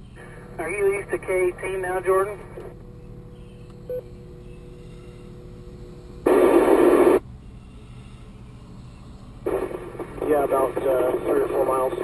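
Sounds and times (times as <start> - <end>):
radio transmission hiss: 0.2 - 2.8, 6.2 - 7.2, 9.4 - 12.0
radio static burst: 6.2 - 7.2, 9.5 - 12.0.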